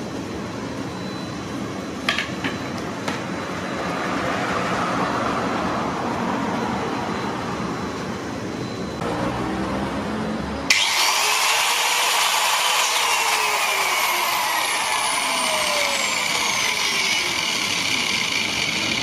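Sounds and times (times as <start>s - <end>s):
steady mechanical whirring: 6.9s - 19.0s.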